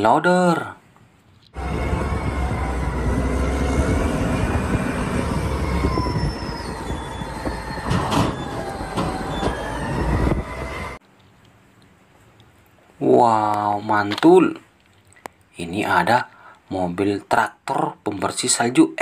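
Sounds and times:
heavy diesel engine under load: 0:01.6 - 0:11.0
high whining tones: 0:01.6 - 0:11.0
sharp metallic knocks: 0:07.4 - 0:09.7.

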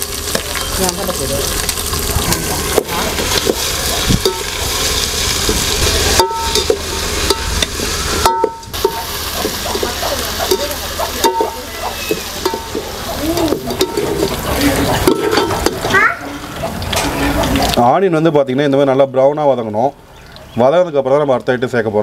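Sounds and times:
onions sizzling in hot oil: 0:00.0 - 0:18.1
metal ladle scraping a pot: 0:02.5 - 0:15.9, 0:16.5 - 0:17.8.

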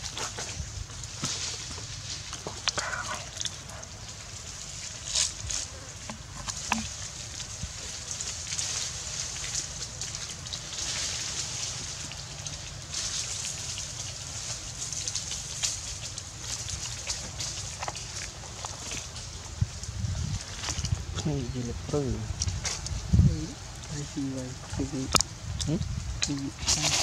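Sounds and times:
dry leaves rustling: 0:00.0 - 0:27.0
steady high hiss: 0:18.9 - 0:27.0.

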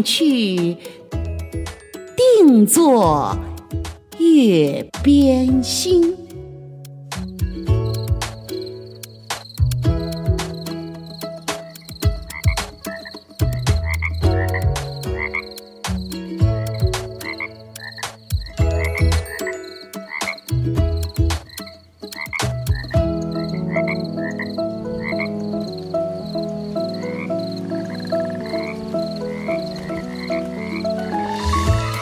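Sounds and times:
clicks and rising chirps: 0:06.8 - 0:12.1
frogs croaking: 0:06.8 - 0:32.0.

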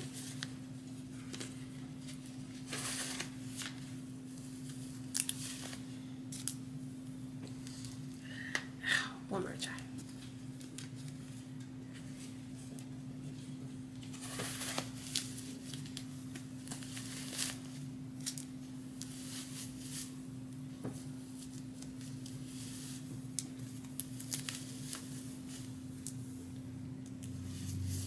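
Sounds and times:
wig hair rustling: 0:00.0 - 0:08.2, 0:10.0 - 0:26.6
steady low hum: 0:00.0 - 0:28.0.

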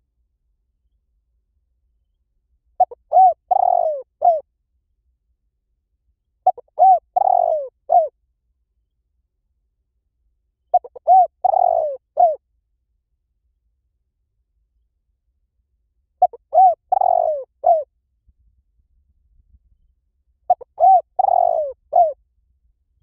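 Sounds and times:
dove cooing: 0:02.8 - 0:04.4, 0:06.4 - 0:08.1, 0:10.7 - 0:12.4, 0:16.2 - 0:17.9, 0:20.5 - 0:22.2.

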